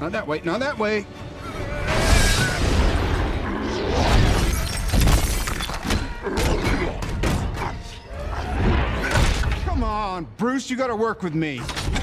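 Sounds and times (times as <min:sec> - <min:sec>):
glass shattering: 0:04.2 - 0:06.1.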